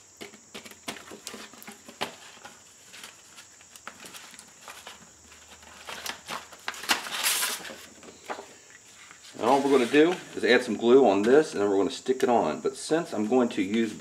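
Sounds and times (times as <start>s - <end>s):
faint high-pitched whine: 0.0s - 14.0s
sandpaper rustling and crinkling: 1.0s - 7.9s, 8.9s - 11.4s.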